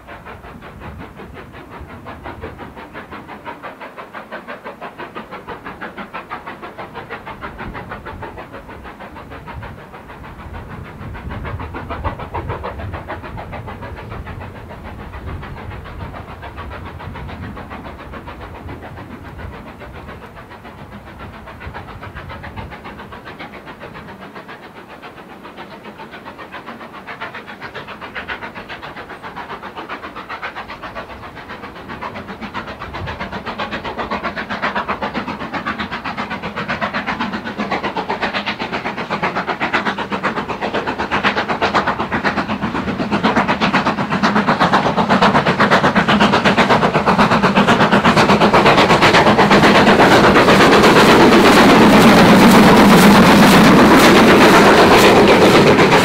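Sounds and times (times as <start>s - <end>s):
steam locomotive chuffing: 0.0s - 56.0s
wheels clattering on rails: 37.2s - 56.0s.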